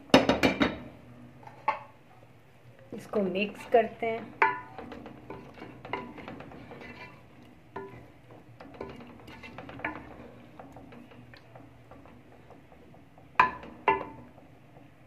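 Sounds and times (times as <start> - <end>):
spoon stirring in metal pot: 3.0 - 15.0
spoon clanking against pot: 3.5 - 14.5.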